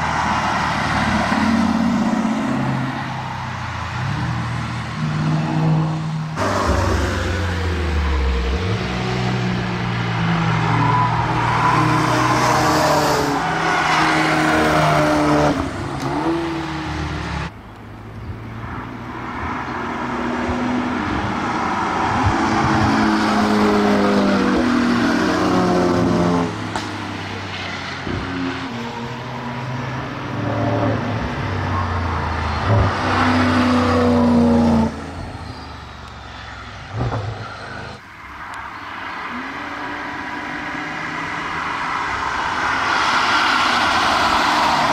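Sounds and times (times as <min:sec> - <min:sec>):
cars accelerating past: 0:00.0 - 0:17.5, 0:18.3 - 0:44.9.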